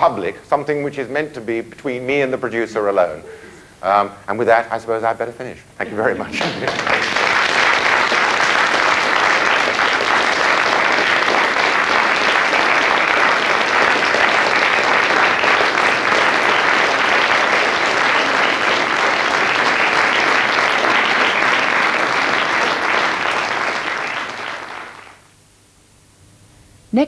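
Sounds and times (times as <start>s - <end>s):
audience applauding: 5.8s - 25.3s.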